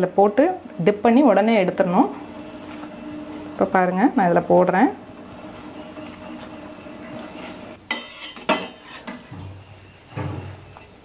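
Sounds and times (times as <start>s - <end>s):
steady low hum: 0.0s - 7.8s.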